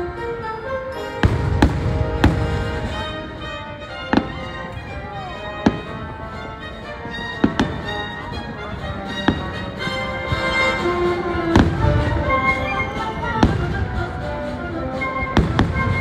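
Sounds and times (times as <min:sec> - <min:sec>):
orchestral music: 0:00.0 - 0:16.0
fireworks bangs: 0:01.2 - 0:06.2, 0:07.3 - 0:07.9, 0:11.2 - 0:14.2, 0:15.3 - 0:16.0.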